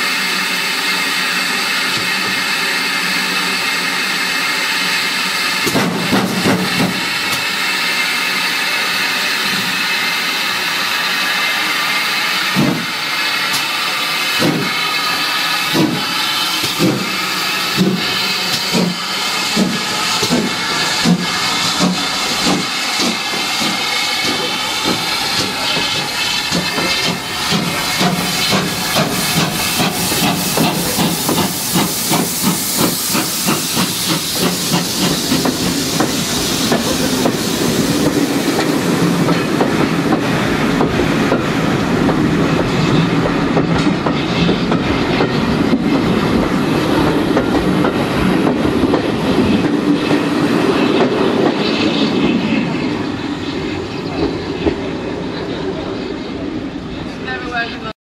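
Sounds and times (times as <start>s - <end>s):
steam hissing: 0.0s - 57.8s
steam locomotive exhaust chuffing: 0.0s - 57.8s
train wheel clicks: 5.6s - 7.5s, 12.5s - 14.9s, 15.6s - 51.7s
train carriages rolling past: 11.0s - 57.9s.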